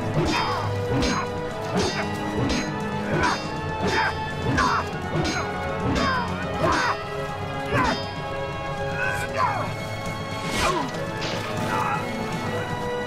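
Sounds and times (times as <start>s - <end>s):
background music: 0.0s - 13.0s
swords clashing: 0.2s - 7.0s.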